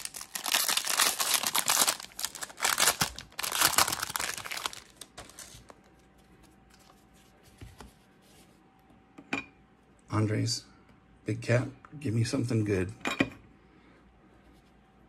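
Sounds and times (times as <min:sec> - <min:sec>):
foil wrapper crinkling and tearing: 0:00.0 - 0:05.9
cards being handled: 0:00.0 - 0:08.0.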